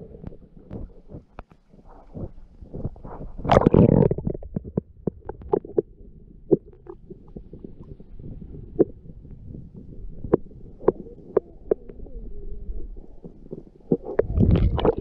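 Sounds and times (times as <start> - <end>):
muffled underwater rumble: 0.0 - 15.0
underwater clicks and knocks: 0.2 - 5.9, 6.5 - 8.0, 10.2 - 12.0, 13.2 - 15.0.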